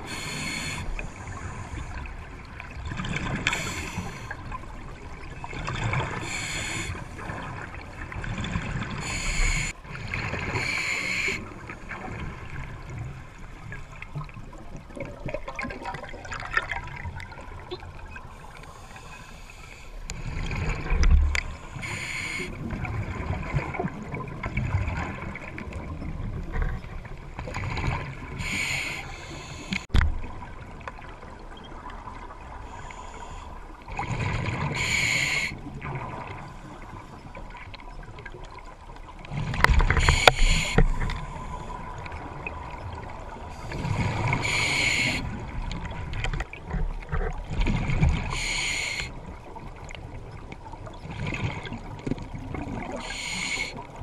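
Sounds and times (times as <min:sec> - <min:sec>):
air hissing through regulator: 0:00.0 - 0:01.2, 0:06.2 - 0:07.0, 0:09.0 - 0:09.7, 0:40.0 - 0:40.9, 0:44.4 - 0:45.2, 0:48.3 - 0:49.1, 0:53.0 - 0:53.8.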